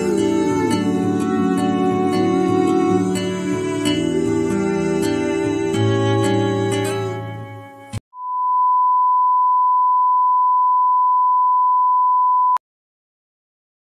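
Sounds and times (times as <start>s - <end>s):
live acoustic guitar music: 0.0s - 8.0s
steady test-tone beep: 8.2s - 12.6s.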